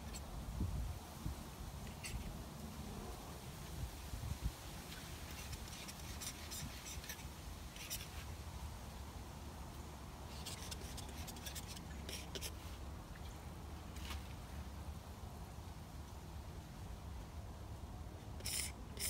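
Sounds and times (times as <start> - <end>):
paintbrush scratching on board: 5.2 - 8.2, 10.3 - 12.6, 18.4 - 19.0.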